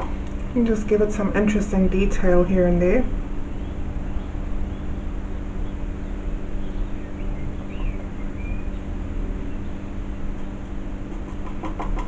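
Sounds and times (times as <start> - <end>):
background hum and rumble: 0.0 - 12.0
faint bird chirps: 3.6 - 9.9.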